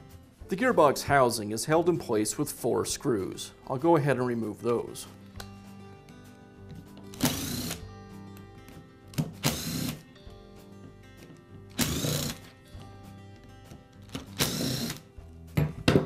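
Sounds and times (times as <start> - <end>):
cordless screwdriver whirring: 7.1 - 7.8, 9.4 - 10.0, 11.8 - 12.5, 14.1 - 15.0.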